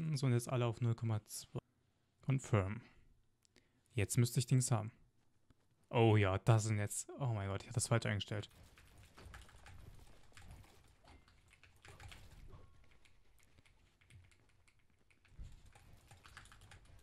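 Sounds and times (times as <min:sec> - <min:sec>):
quick keyboard keystrokes: 0:08.4 - 0:17.0.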